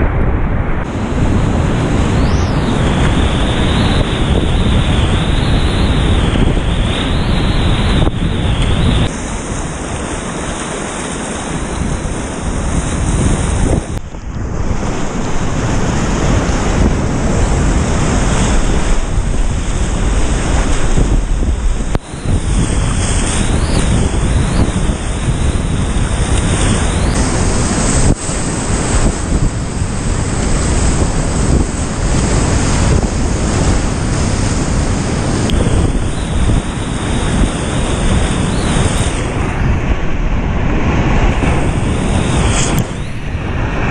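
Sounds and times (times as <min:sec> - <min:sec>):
wind buffeting microphone: 0:00.0 - 0:43.9.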